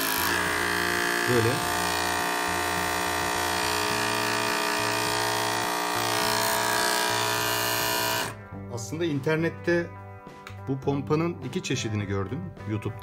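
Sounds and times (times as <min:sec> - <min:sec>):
small pump motor buzzing: 0:00.0 - 0:08.4.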